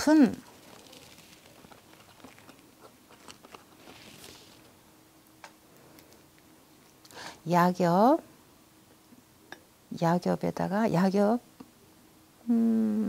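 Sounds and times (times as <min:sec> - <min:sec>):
paint tubes clicking and rustling: 0:00.4 - 0:04.6.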